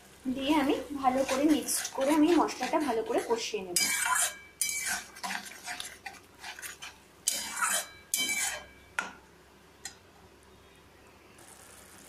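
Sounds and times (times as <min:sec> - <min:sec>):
metal spatula scraping pan: 0:01.0 - 0:08.8
spatula tapping pan: 0:01.2 - 0:09.2.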